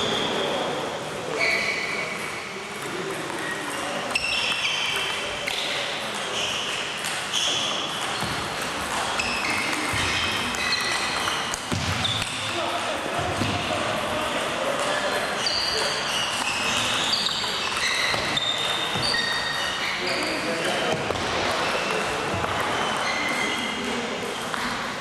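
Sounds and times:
murmur of voices: 0:00.0 - 0:25.0
shoes squeaking: 0:01.3 - 0:02.4, 0:03.3 - 0:12.5, 0:13.4 - 0:24.8
table tennis balls clicking: 0:07.9 - 0:13.5.

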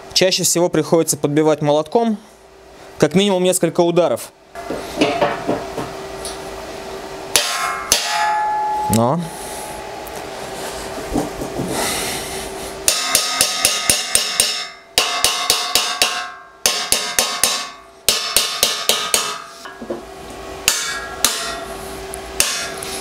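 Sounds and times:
hammer striking steel: 0:07.3 - 0:10.1, 0:12.8 - 0:19.9, 0:20.6 - 0:21.7, 0:22.4 - 0:22.8
steel ringing: 0:07.3 - 0:10.6, 0:12.8 - 0:19.8, 0:20.6 - 0:21.8.

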